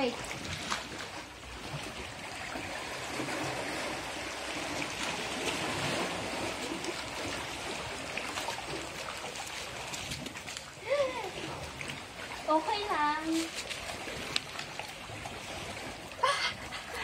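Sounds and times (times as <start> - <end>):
seawater washing on shore: 0.0 - 17.0.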